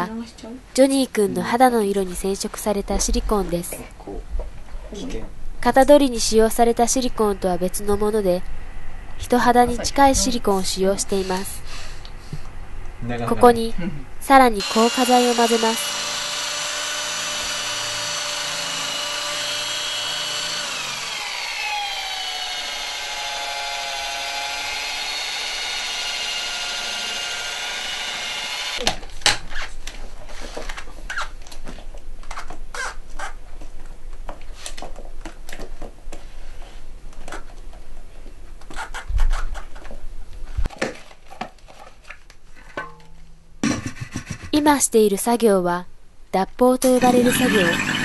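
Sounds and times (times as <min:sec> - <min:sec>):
electric drill whining: 0:14.6 - 0:28.8, 0:47.0 - 0:48.0.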